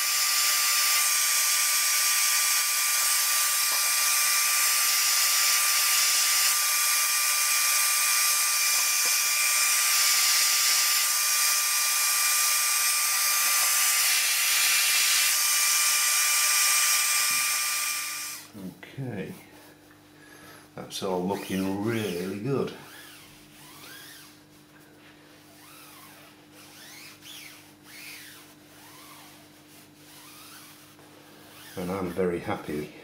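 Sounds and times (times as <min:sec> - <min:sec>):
hairdryer running: 0:00.0 - 0:18.5.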